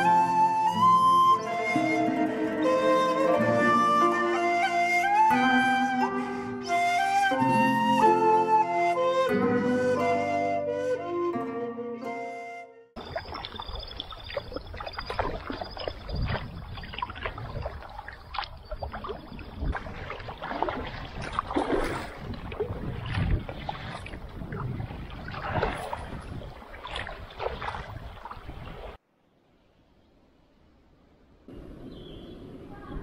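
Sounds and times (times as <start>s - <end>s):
kayak paddles splashing in water: 13.0s - 29.0s
wind rumbling on microphone: 13.0s - 29.0s.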